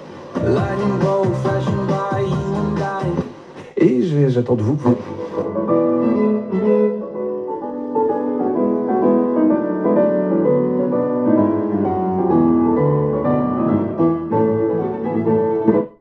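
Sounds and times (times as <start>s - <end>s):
piano-led music from boombox: 0.0s - 3.6s, 4.6s - 16.0s.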